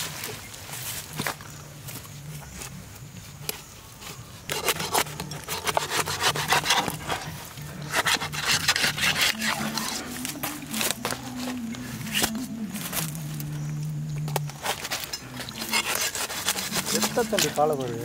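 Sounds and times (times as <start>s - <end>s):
knife sawing through tough skin: 4.5s - 10.2s, 14.7s - 17.7s.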